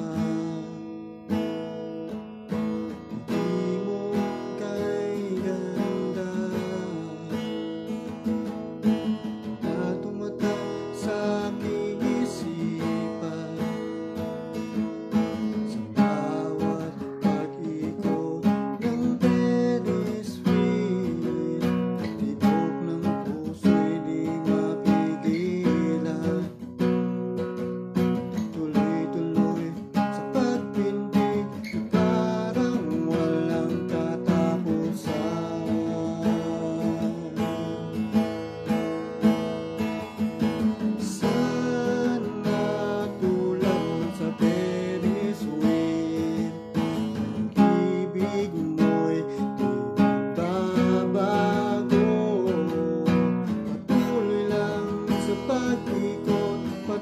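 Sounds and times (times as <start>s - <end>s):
acoustic guitar strumming chords: 0.0s - 57.0s.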